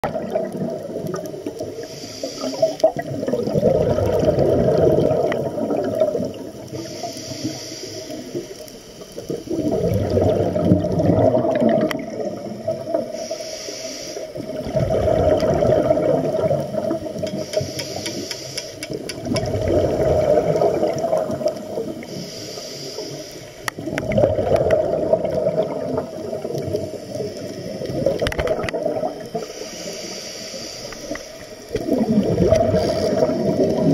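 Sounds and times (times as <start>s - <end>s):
exhaled bubbles rushing: 0.0s - 6.9s, 9.2s - 13.2s, 14.4s - 17.3s, 18.9s - 22.1s, 23.7s - 29.6s, 31.6s - 33.9s
regulator inhalation hiss: 1.6s - 2.9s, 6.7s - 9.7s, 12.2s - 14.5s, 17.2s - 19.0s, 21.9s - 23.8s, 29.3s - 31.8s, 32.7s - 33.6s.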